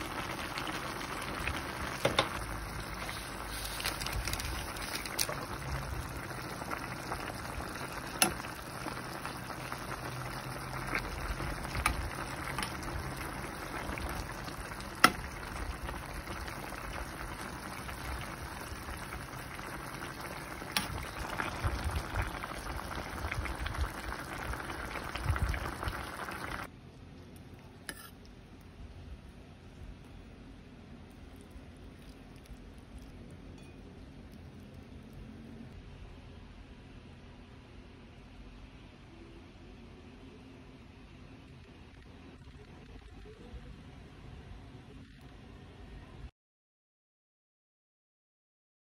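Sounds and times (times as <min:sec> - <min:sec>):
broth bubbling in a wok: 0:00.0 - 0:29.3.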